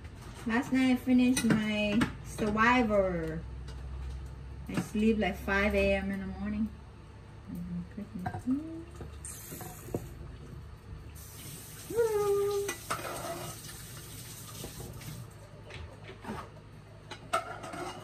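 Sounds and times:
tap running into sink: 0:12.5 - 0:15.2.

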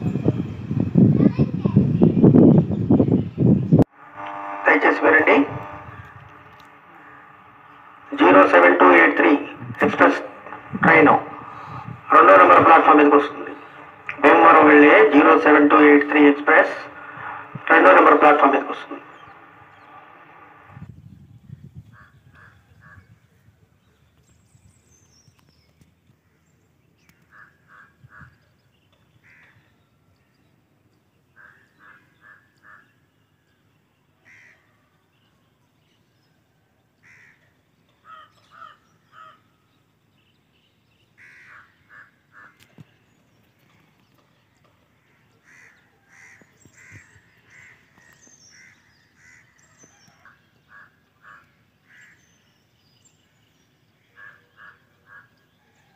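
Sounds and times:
crows cawing: 0:27.2 - 0:28.3, 0:29.2 - 0:29.6, 0:31.4 - 0:33.0, 0:34.2 - 0:34.8, 0:37.0 - 0:39.5, 0:41.2 - 0:42.8, 0:44.9 - 0:52.4, 0:54.0 - 0:55.4.

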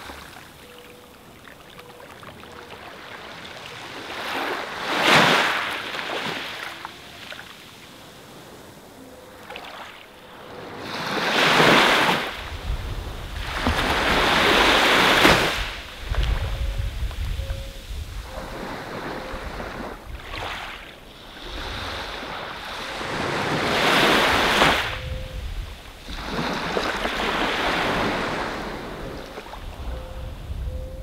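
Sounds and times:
surf washing onto beach: 0:10.8 - 0:17.3
low wind rumble: 0:12.4 - 0:20.4, 0:24.3 - 0:26.8, 0:27.6 - 0:31.0.

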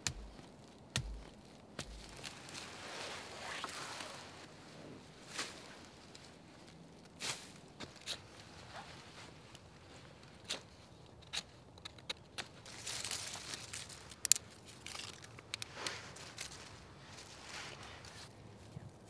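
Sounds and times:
stick scraping soil: 0:00.0 - 0:04.4, 0:07.2 - 0:09.0, 0:10.3 - 0:18.3
twig snaps: 0:10.4 - 0:16.7.

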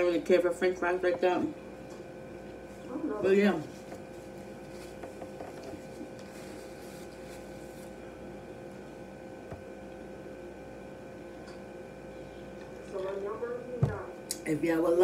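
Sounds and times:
electrical hum: 0:00.0 - 0:15.0
paper napkin rustling: 0:02.6 - 0:08.2.

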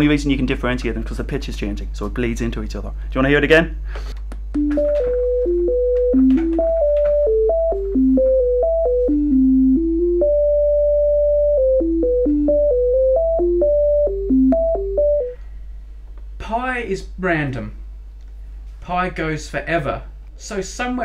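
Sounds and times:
computer-generated pure tones: 0:04.6 - 0:15.4.

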